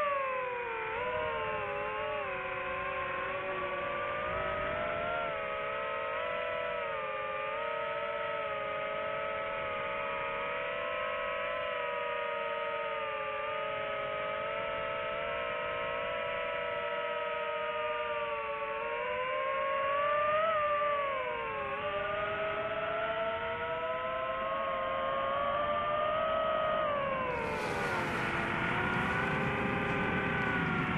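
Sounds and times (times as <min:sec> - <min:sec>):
drone propellers whining: 0:20.0 - 0:30.9.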